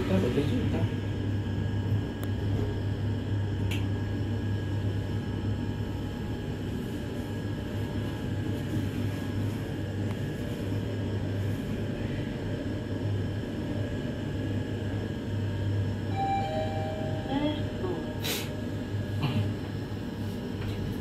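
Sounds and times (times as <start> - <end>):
elevator hum and rumble: 0.0 - 21.0
elevator arrival chime: 16.0 - 17.8.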